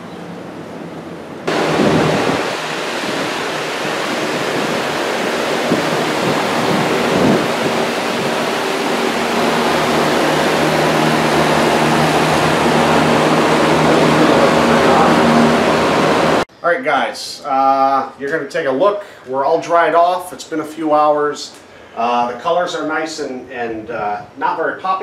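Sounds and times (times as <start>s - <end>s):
loud rushing noise: 1.4s - 16.5s.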